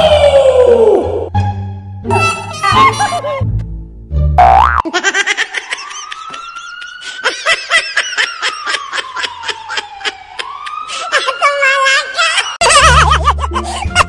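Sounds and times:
siren wail: 5.6s - 12.6s.

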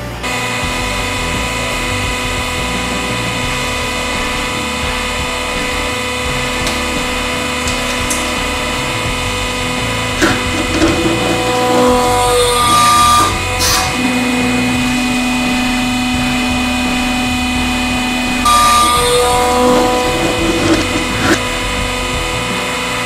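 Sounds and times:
hydraulic pump whining: 0.0s - 23.0s.

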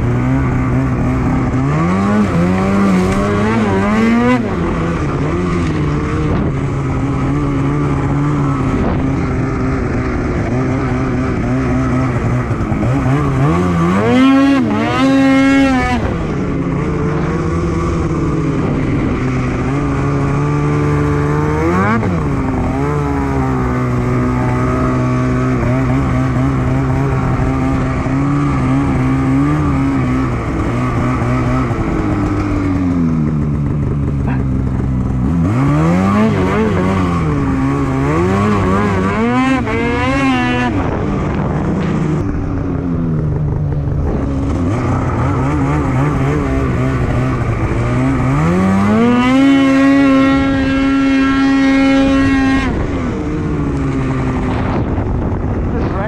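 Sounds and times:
snowmobile engine revving: 0.0s - 56.0s.

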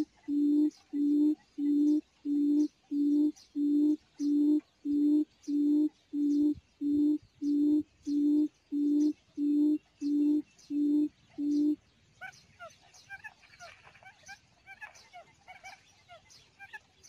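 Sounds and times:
quail call through speaker: 0.0s - 3.3s.

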